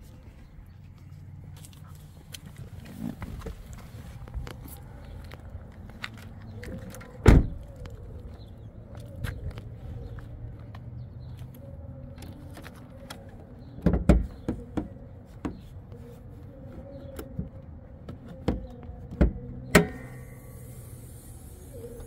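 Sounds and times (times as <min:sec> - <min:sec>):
car hood knocks and clicks: 0:13.8 - 0:15.6.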